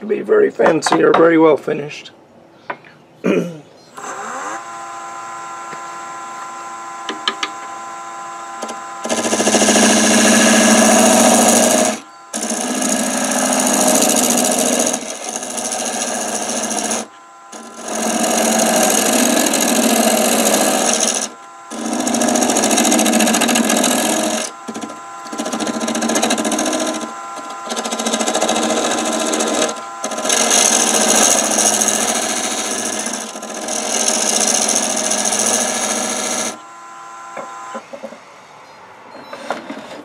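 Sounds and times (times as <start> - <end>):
wood lathe motor hum: 4.0 - 37.8
tool scraping spinning wood: 8.6 - 36.6.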